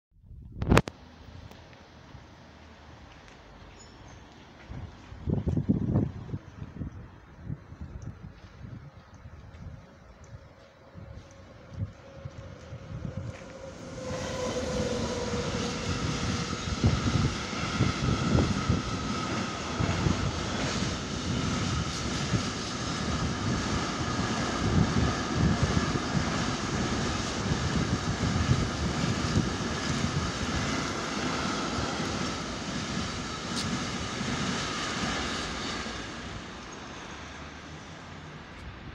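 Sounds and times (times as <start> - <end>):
train wheels rumbling on rails: 7.8 - 38.9.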